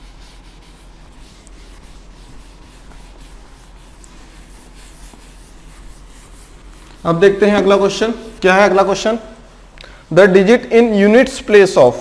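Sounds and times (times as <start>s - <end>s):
cloth rubbing on chalkboard: 0.0s - 9.3s.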